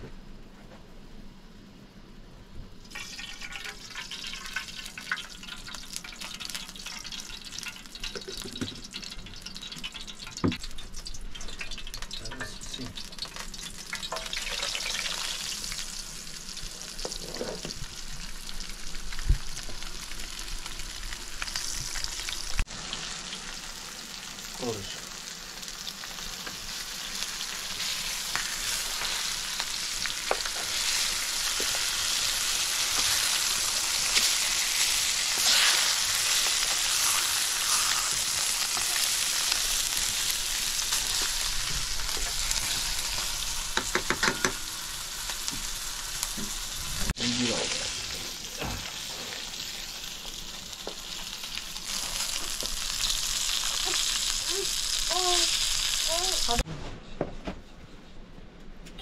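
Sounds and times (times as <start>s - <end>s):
hot oil sizzling: 2.8s - 56.7s.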